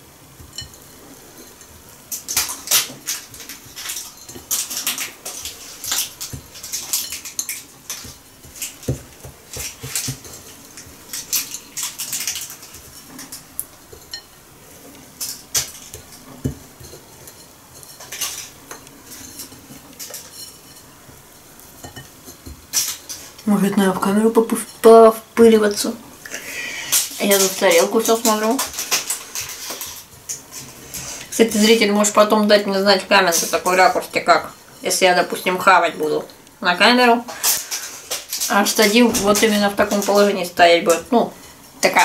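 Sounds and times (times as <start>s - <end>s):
crumbs scraping on a plate: 0.5s - 23.5s, 26.4s - 35.6s.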